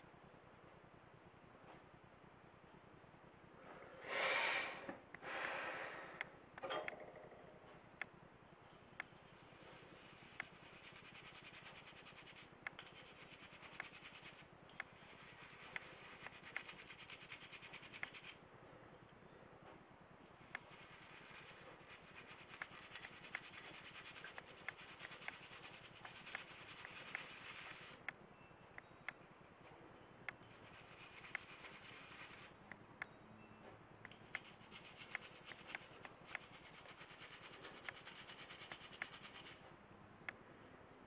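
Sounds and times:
brush scrubbing metal: 9.0 - 18.4, 20.4 - 28.0.

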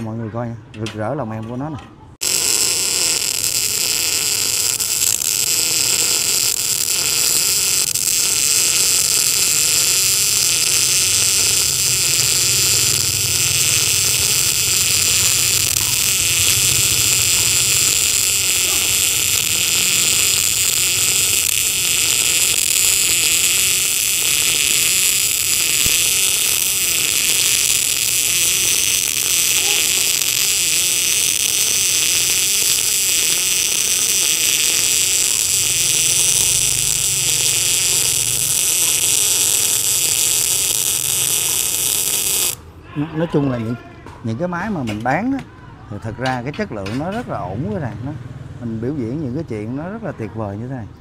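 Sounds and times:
welding arc hissing: 2.2 - 42.7.

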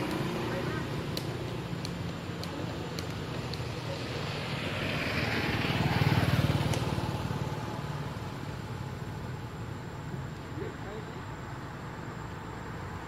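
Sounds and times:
vehicle engine passing by: 3.6 - 9.5.

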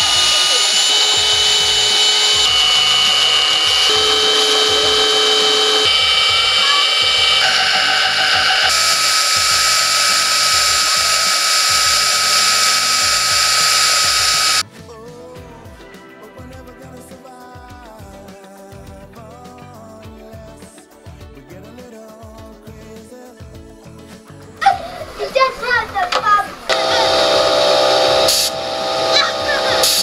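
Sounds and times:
belt sander grinding plastic pipe: 0.0 - 14.6, 26.6 - 30.0.

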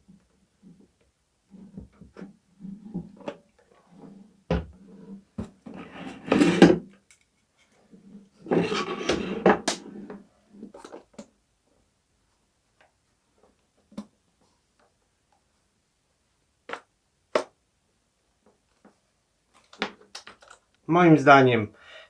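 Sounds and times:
plastic rubbing and scraping: 1.5 - 6.8, 7.6 - 11.1.

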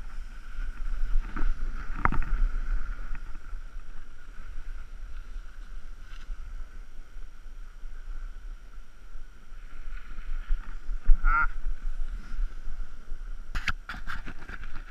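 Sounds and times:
wind buffeting microphone: 0.0 - 14.9
short vocal call: 11.0 - 11.6.

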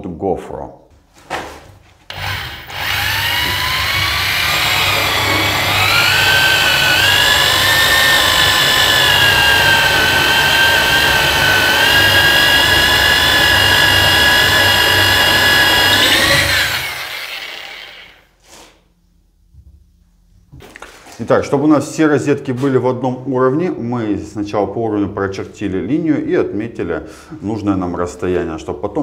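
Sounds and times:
electric drill drilling into wall: 2.1 - 18.2.

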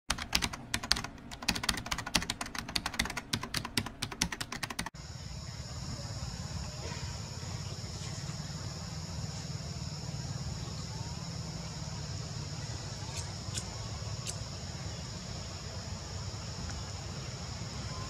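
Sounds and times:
computer keyboard typing: 0.1 - 4.9
high insect drone: 5.0 - 18.0.

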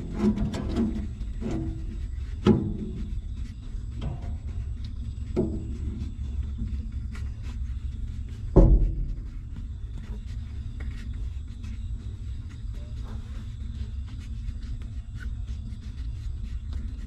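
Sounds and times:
steady low rumble: 0.0 - 17.0
dull knocks: 8.5 - 9.3.

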